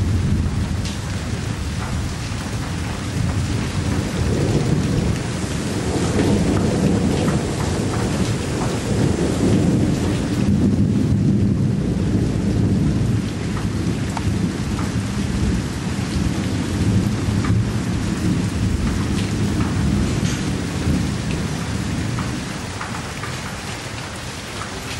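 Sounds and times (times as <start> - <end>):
rain falling: 0.0 - 24.9
drops ticking on a surface: 1.7 - 10.3, 13.5 - 15.0, 17.4 - 17.6, 18.7 - 24.9.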